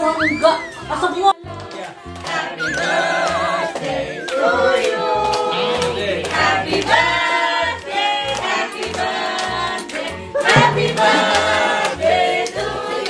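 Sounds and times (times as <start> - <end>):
voices singing together: 1.4 - 13.0
steady low pulse: 10.5 - 11.7.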